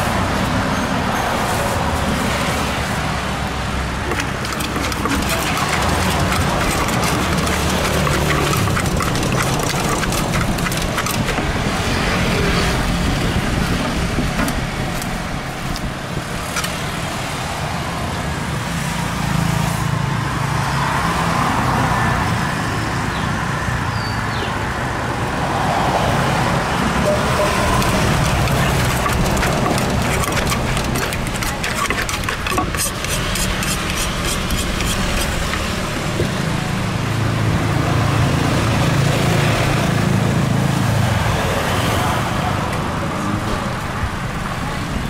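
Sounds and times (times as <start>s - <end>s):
road traffic rumble: 0.0s - 45.0s
spoon scraping: 4.0s - 12.7s, 27.1s - 36.2s
wooden pestle knocking in mortar: 4.1s - 11.8s, 27.4s - 36.3s.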